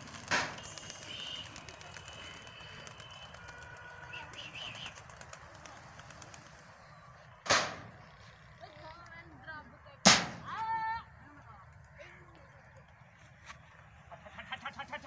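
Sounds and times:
pigeon wings flapping: 0:00.0 - 0:06.9
short bird calls: 0:00.5 - 0:05.8.

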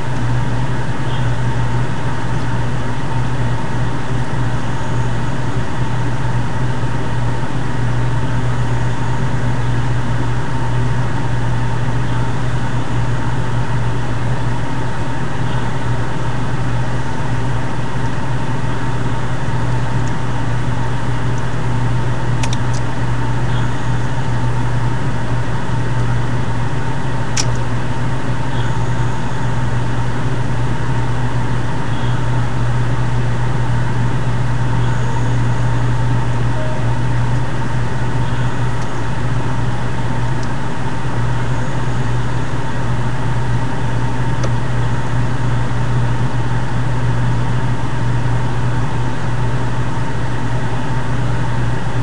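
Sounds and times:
low drone with hiss: 0:00.0 - 0:52.0.

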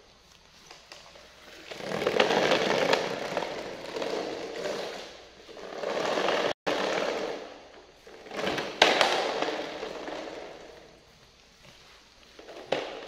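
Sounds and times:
plastic toy truck rolling on tiles: 0:01.5 - 0:11.0.

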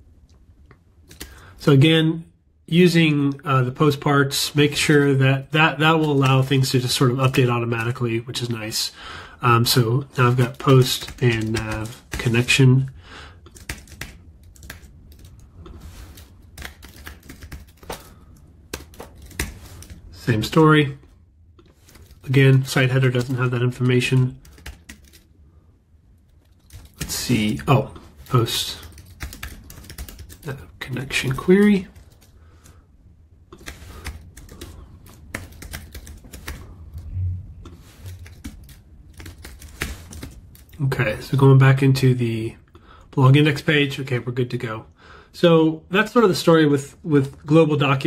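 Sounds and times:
faint low hum: 0:00.0 - 0:48.0
low thump: 0:37.1 - 0:37.7.

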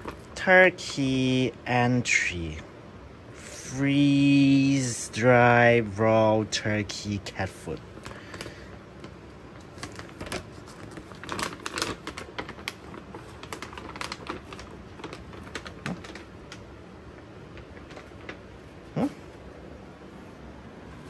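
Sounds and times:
plastic bag crinkling: 0:07.6 - 0:18.9.

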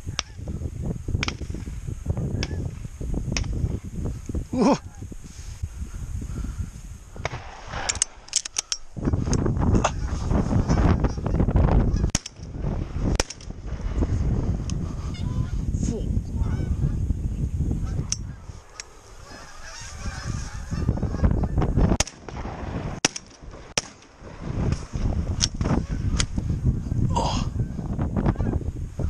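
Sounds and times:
sharp clicks: 0:07.2 - 0:09.5
geese honking: 0:08.6 - 0:12.1, 0:14.6 - 0:15.7, 0:16.4 - 0:17.0, 0:17.8 - 0:21.8.

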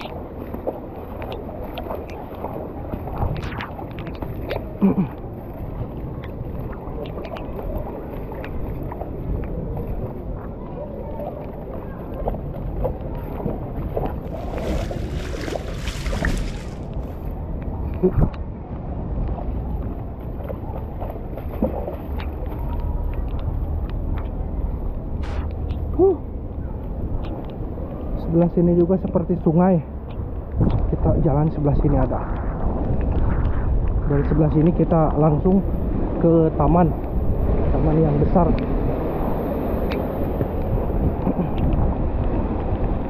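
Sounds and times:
water sloshing from wading: 0:00.0 - 0:17.5, 0:19.5 - 0:28.2
outdoor ambience: 0:00.0 - 0:43.0
wind noise on microphone: 0:00.0 - 0:43.0.

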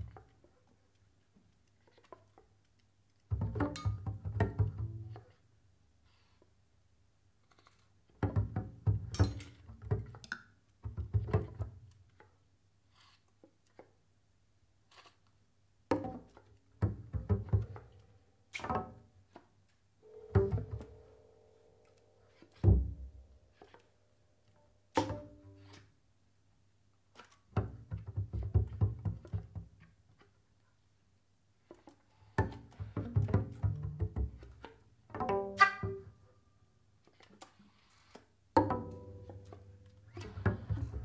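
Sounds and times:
double bass plucked and knocked: 0:03.3 - 0:05.4, 0:08.1 - 0:11.9, 0:15.9 - 0:18.0, 0:18.6 - 0:19.1, 0:20.1 - 0:21.3, 0:22.5 - 0:23.4, 0:24.9 - 0:25.5, 0:27.5 - 0:29.9, 0:32.4 - 0:36.2, 0:38.6 - 0:41.0.

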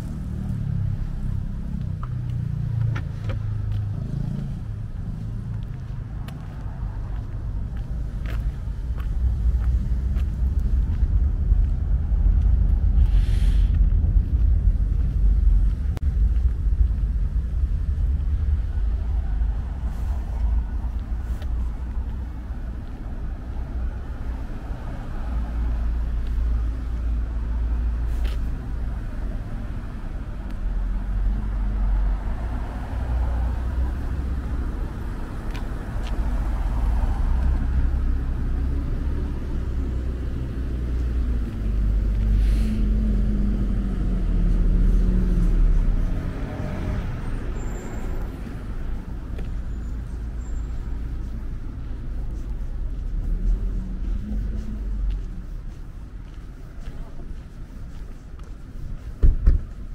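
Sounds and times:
cars passing: 0:00.0 - 0:59.9
short hiss: 0:13.1 - 0:13.7.

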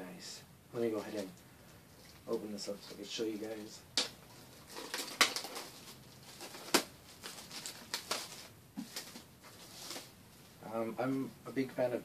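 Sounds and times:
plastic wrapping crinkling: 0:02.0 - 0:10.2.

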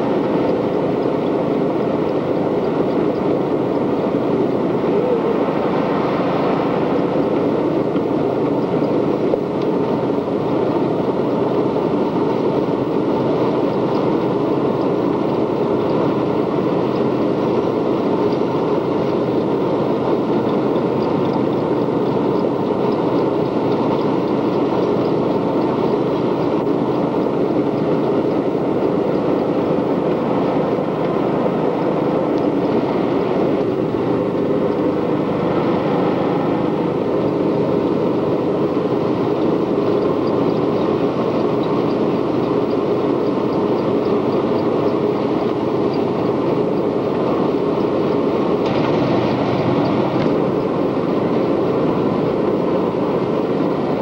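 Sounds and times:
atv engine running: 0:00.0 - 0:54.0
constant rushing noise: 0:00.0 - 0:54.0.

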